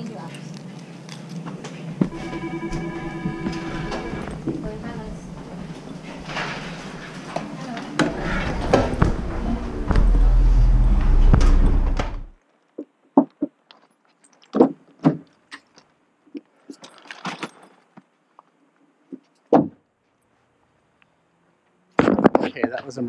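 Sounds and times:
loud rumbling wind: 0:08.0 - 0:12.4.

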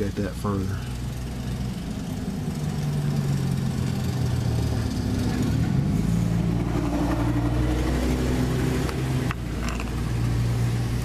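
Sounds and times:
engine running steadily: 0:00.0 - 0:11.0.

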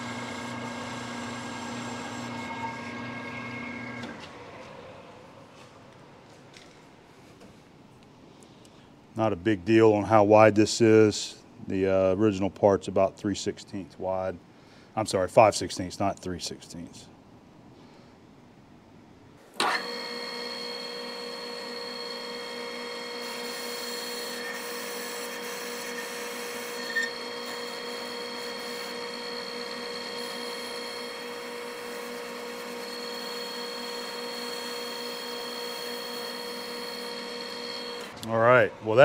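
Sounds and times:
metal lathe whine: 0:00.0 - 0:05.2, 0:19.6 - 0:38.2
cutting tool scraping metal: 0:23.2 - 0:38.1.

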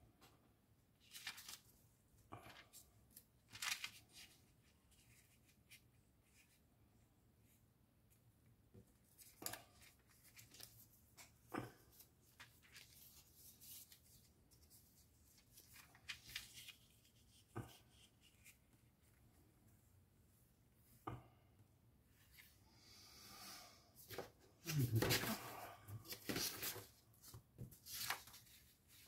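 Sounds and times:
paper rustling: 0:01.0 - 0:01.8, 0:02.4 - 0:06.6, 0:08.9 - 0:19.2, 0:24.1 - 0:29.0.

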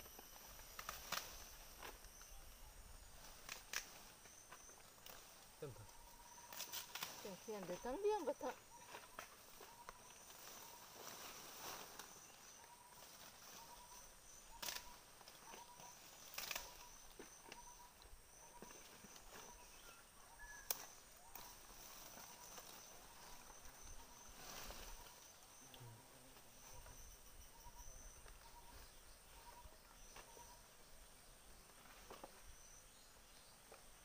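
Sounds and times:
sharp snaps or rustles: 0:00.6 - 0:02.1, 0:03.4 - 0:04.0, 0:16.3 - 0:16.8.

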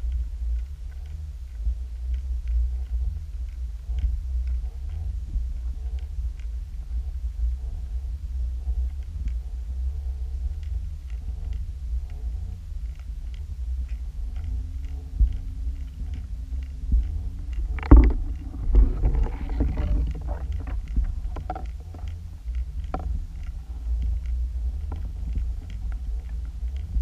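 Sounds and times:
faint regular ticking: 0:00.0 - 0:27.0
underwater rumble of moving water: 0:00.0 - 0:27.0.

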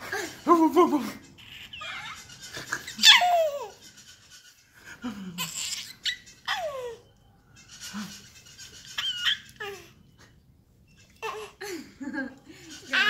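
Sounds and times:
baby laughing: 0:00.0 - 0:04.3, 0:05.0 - 0:07.0, 0:07.8 - 0:10.0, 0:11.1 - 0:13.0.

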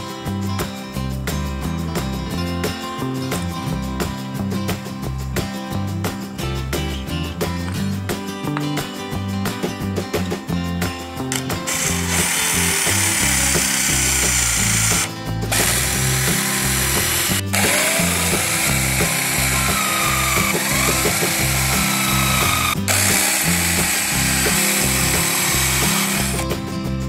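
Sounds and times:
background music with steady beat: 0:00.0 - 0:27.0
cordless drill boring wood: 0:11.3 - 0:26.4.

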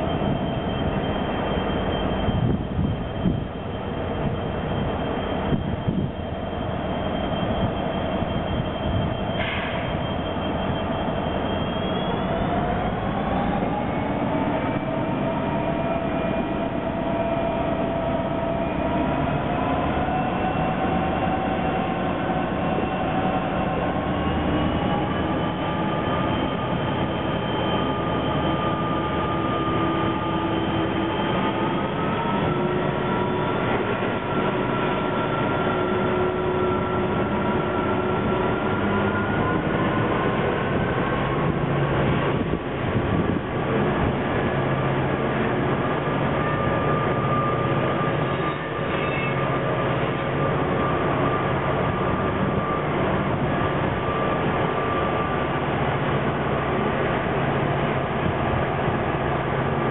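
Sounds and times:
whining tones rising in pitch: 0:00.0 - 0:59.7
diesel locomotives working hard: 0:00.0 - 0:59.9
brief high screech: 0:07.1 - 0:12.5, 0:46.5 - 0:50.2.

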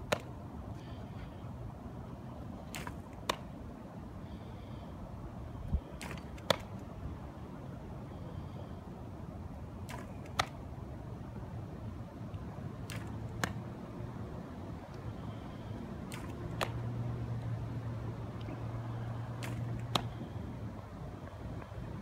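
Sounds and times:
steady low hum: 0:00.0 - 0:22.0
baseball popping into gloves: 0:00.1 - 0:00.3, 0:02.7 - 0:03.5, 0:06.0 - 0:06.8, 0:09.8 - 0:10.6, 0:12.8 - 0:13.6, 0:16.1 - 0:16.9, 0:19.4 - 0:20.2.

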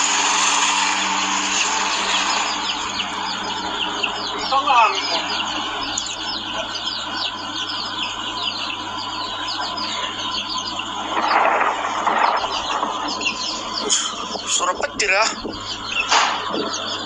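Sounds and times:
small birds chirping: 0:00.0 - 0:17.0
rushing noise: 0:09.8 - 0:15.6.

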